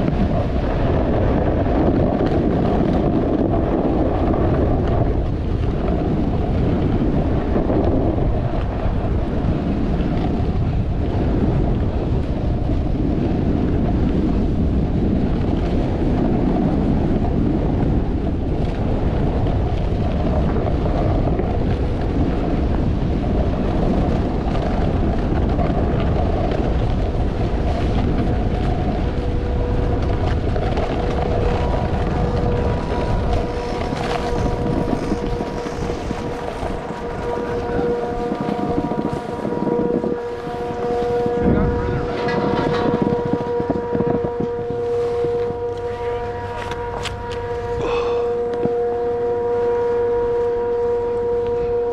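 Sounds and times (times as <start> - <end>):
snowboard sliding over snow: 0.0 - 48.3
steady hum: 0.0 - 51.9
wind on microphone: 0.0 - 51.9.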